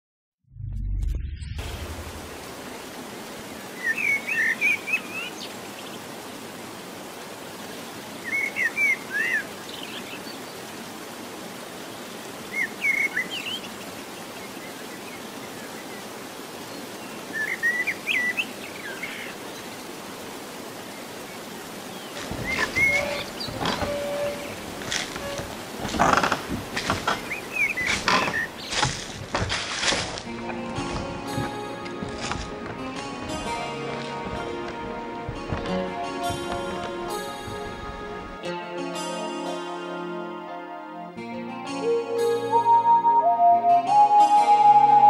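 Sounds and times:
running water rushing: 1.6s - 38.5s
songbird chirping: 2.4s - 6.8s, 7.6s - 38.5s.

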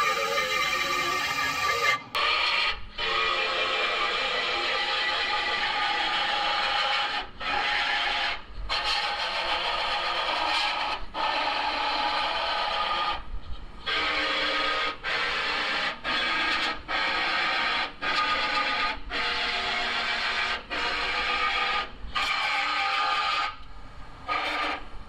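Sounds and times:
grinder on sheet metal: 0.0s - 2.7s, 15.2s - 23.5s.

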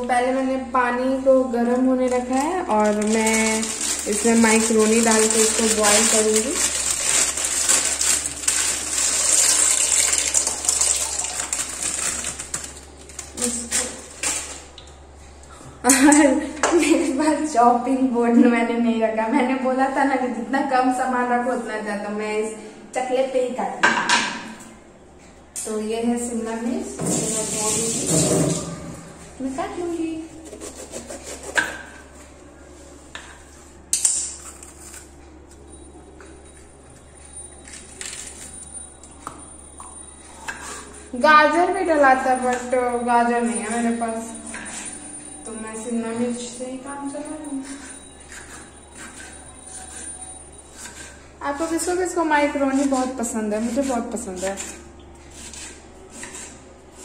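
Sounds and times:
low steady hum: 0.0s - 57.0s
dry pasta pouring into pan: 5.2s - 12.4s
knife cutting pepper: 52.7s - 57.0s.

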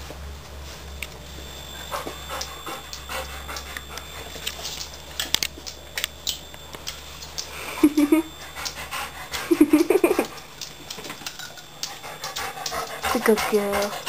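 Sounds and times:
dog panting: 1.8s - 4.3s, 8.4s - 10.4s, 11.8s - 14.0s.

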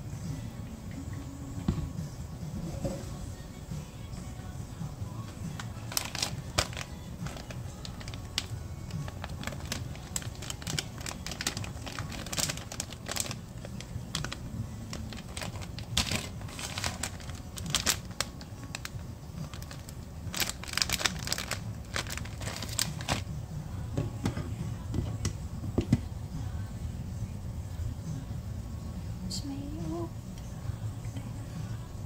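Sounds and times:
plastic bag crinkling: 5.5s - 23.3s.

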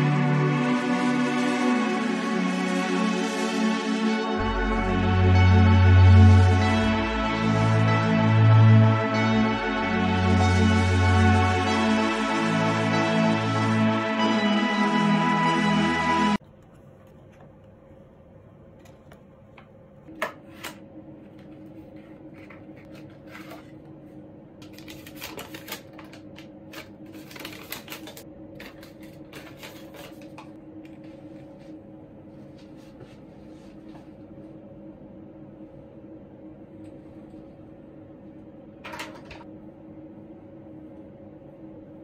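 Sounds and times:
paper crinkling: 21.8s - 23.8s, 24.6s - 30.5s
steady low hum: 28.2s - 42.0s.

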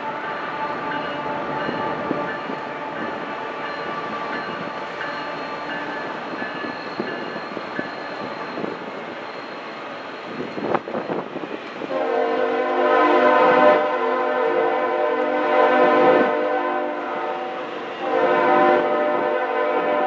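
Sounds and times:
train cars rumbling on rails: 0.0s - 20.0s
locomotive air horn chord: 11.9s - 20.0s.

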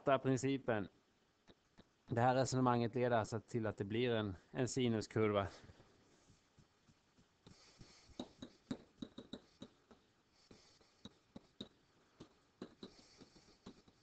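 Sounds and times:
stylus tapping and scratching tablet: 6.1s - 14.0s.

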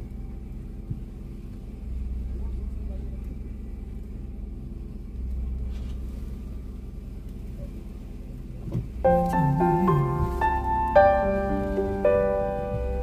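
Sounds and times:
car engine rumble from cabin: 0.0s - 13.0s
piano music: 9.0s - 13.0s.

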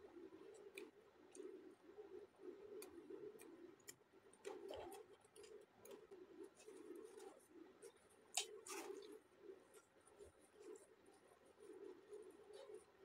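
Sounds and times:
chewing with mouth clicks: 2.8s - 9.2s.

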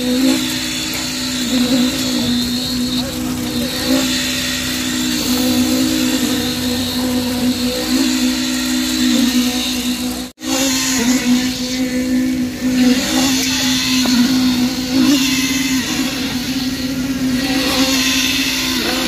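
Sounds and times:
concrete vibrator humming: 0.0s - 19.0s.

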